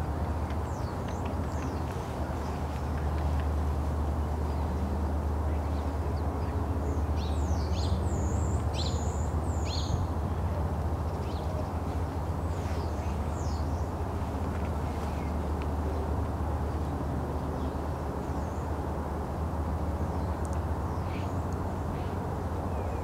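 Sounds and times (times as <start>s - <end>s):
birds chirping: 0.3s - 3.5s.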